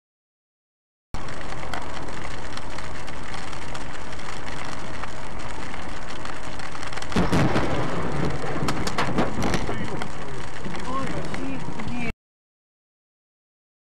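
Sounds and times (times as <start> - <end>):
windshield wipers: 1.2 - 12.1
car road noise in rain: 1.2 - 12.2.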